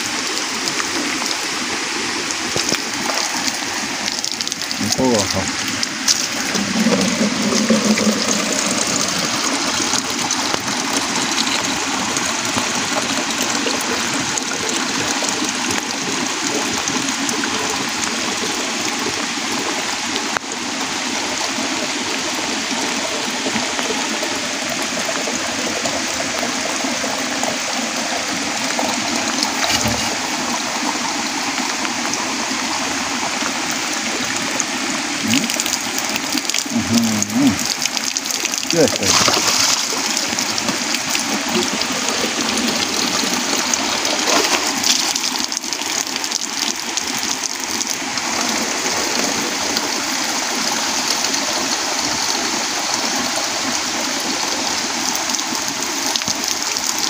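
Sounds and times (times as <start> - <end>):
water pouring into plastic jar: 0.0 - 19.0, 23.0 - 30.8, 33.6 - 51.2
water splashing on wet ground: 0.0 - 57.0.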